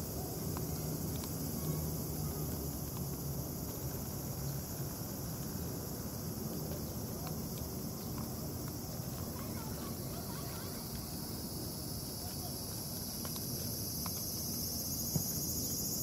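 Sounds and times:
insects chirping: 0.0 - 16.0.

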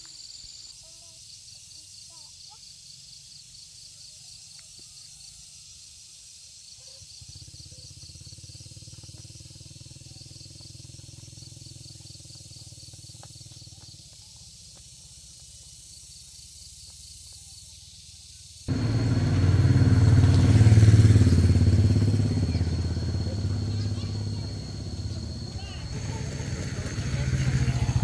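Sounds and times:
high pulsing insect chirp: 0.0 - 28.0
low motor hum: 18.7 - 28.0.

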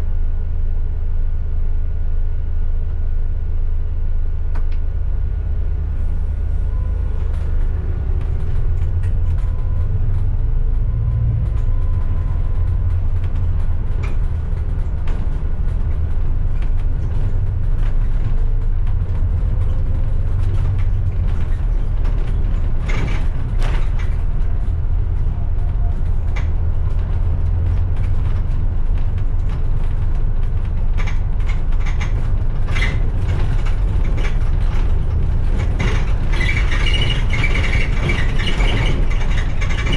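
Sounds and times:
bus engine droning: 0.0 - 39.9
loose fittings rattling: 27.9 - 39.9.

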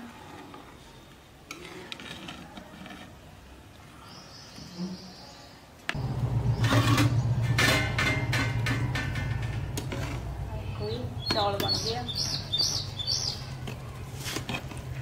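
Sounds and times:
steady low hum: 6.0 - 14.1
metal spoon scraping a pan: 6.6 - 10.4.

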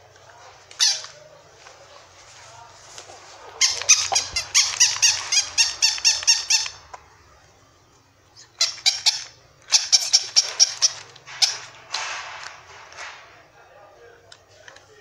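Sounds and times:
toy dogs yapping through speakers: 0.7 - 1.2, 3.4 - 7.0, 8.5 - 11.8.

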